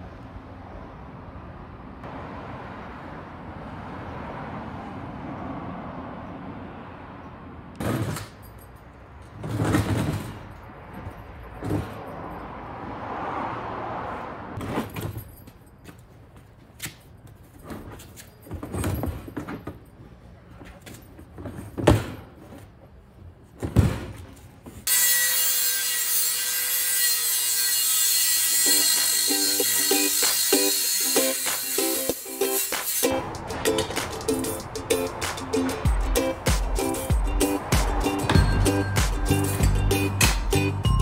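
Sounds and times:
wooden boards scraping: 9.4 - 10.5
background music: 29.4 - 41.0.

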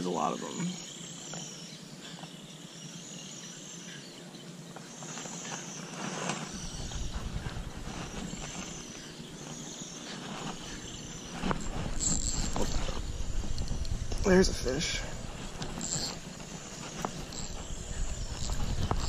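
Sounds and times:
insects trilling: 0.0 - 19.0
low rumble: 6.6 - 8.8, 10.6 - 19.0.

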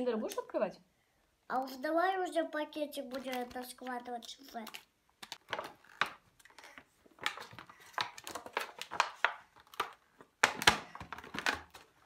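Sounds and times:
plastic packaging crinkling: 3.0 - 12.0.

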